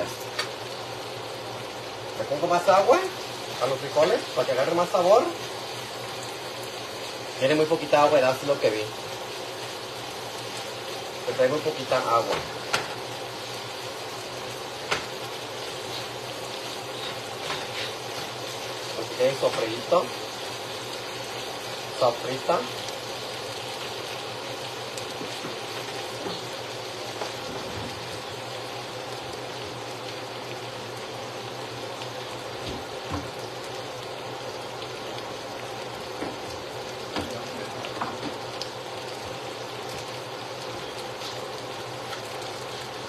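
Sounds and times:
food sizzling in a frying pan: 0.0 - 43.0
knocks on a cutting board: 14.9 - 15.1, 32.6 - 33.3.

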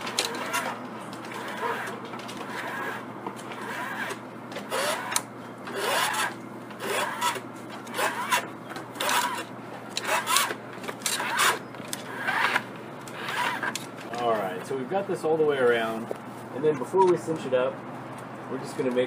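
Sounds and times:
cable squeaking: 0.0 - 13.9
cable rasping against wooden post: 0.1 - 13.8.

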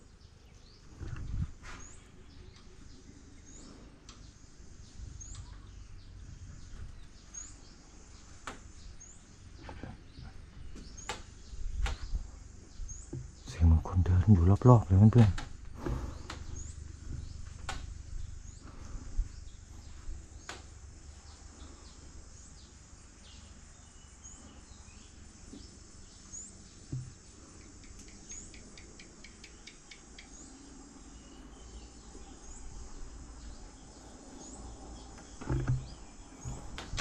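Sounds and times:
soft knocks: 26.9 - 27.2, 35.3 - 37.0.

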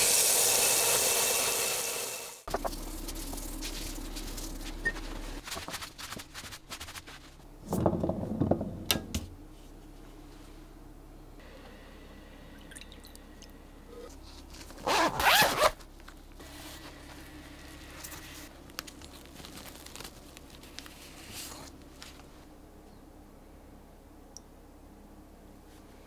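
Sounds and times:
soft rustling: 2.6 - 7.4, 15.6 - 22.6
zipper pulled open: 14.8 - 15.8.

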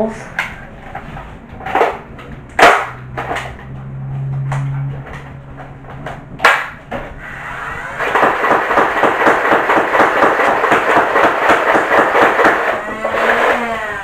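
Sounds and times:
rapid foam dart shots: 2.6 - 3.5, 6.4 - 7.0, 8.0 - 12.8
toy blaster motor whirring: 12.6 - 14.0.

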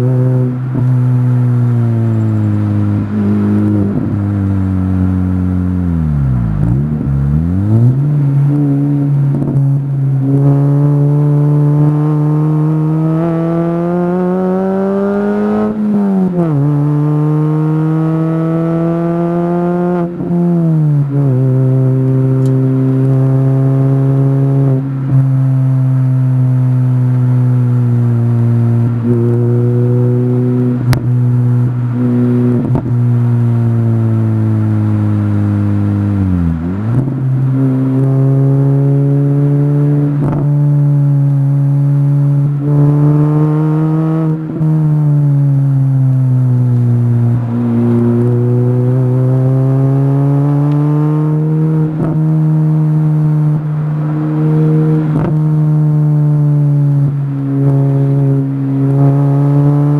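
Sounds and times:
race car engine running: 21.0 - 59.9.

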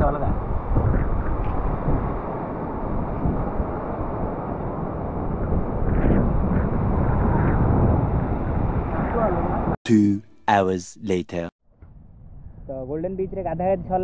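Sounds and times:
wind buffeting microphone: 0.0 - 4.2, 5.0 - 9.1.

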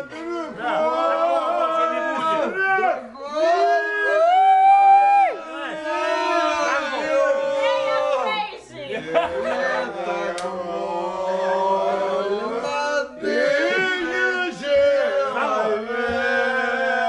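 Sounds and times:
men singing in parts: 9.0 - 17.0.

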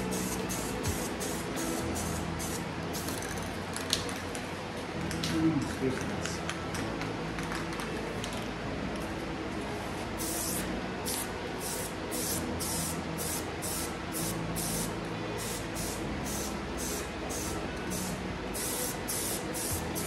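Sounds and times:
spray paint can hissing: 0.0 - 3.6, 10.2 - 20.0.

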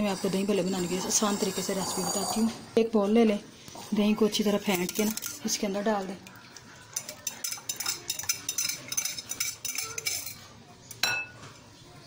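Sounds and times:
spoon clinking against glass bowl: 4.7 - 5.4, 7.0 - 10.4, 11.0 - 11.4.

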